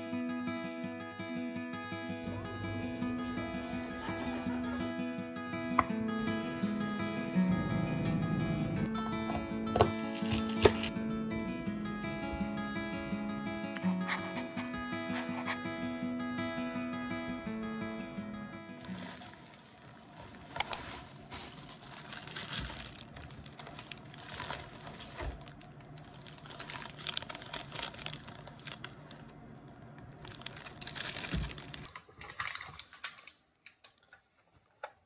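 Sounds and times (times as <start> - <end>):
plastic bags rustling: 18.8 - 29.4, 30.1 - 34.5
sharp click: 20.6 - 20.8.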